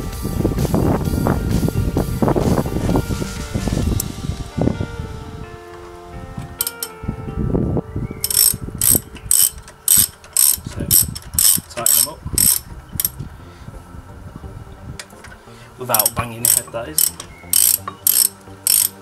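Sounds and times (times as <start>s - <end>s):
socket ratchet clicking: 6.6s - 6.9s, 8.2s - 13.2s, 16.0s - 19.0s.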